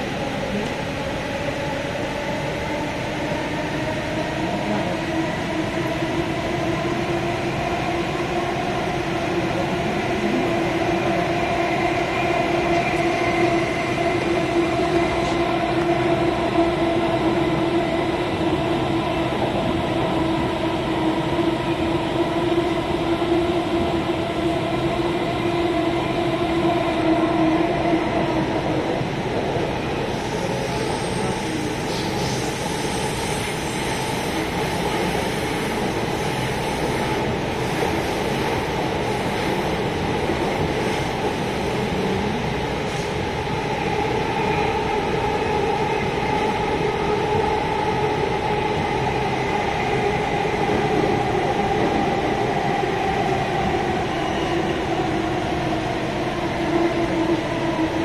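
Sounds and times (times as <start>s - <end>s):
train whine: 0.0s - 58.0s.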